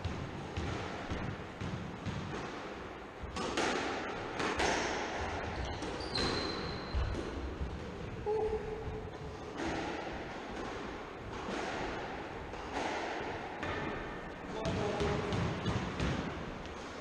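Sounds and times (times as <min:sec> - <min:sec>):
squash ball hits: 0:00.0 - 0:07.9, 0:09.1 - 0:16.6
shoe squeaks on floor: 0:05.6 - 0:07.1.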